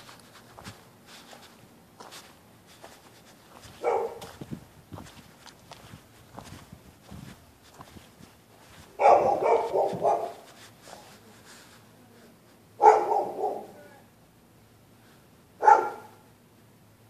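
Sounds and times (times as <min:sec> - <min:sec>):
dogs barking: 0:03.7 - 0:04.4, 0:08.9 - 0:10.5, 0:12.8 - 0:13.8, 0:15.6 - 0:16.3.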